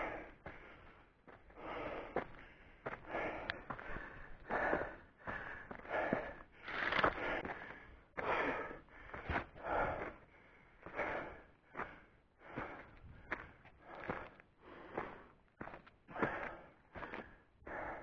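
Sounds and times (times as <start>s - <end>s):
man breathing hard: 0.0s - 18.0s
footfalls on rocky dirt: 5.3s - 7.6s.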